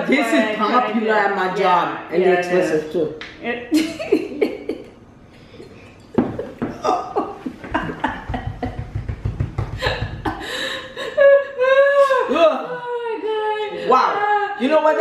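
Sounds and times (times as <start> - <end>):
women laughing: 3.7 - 5.0, 6.2 - 14.3.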